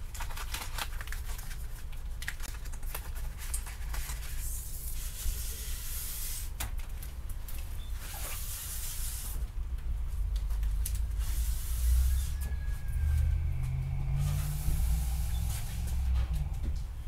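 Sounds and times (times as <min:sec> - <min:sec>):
tape unrolling rustle: 0:00.0 - 0:16.5
low rumble: 0:09.6 - 0:17.0.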